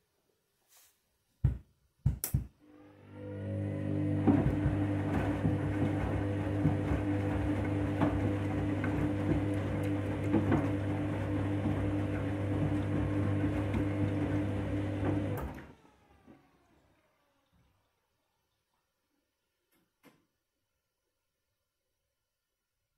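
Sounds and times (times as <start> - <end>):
washing machine drum turning: 3.7 - 15.5.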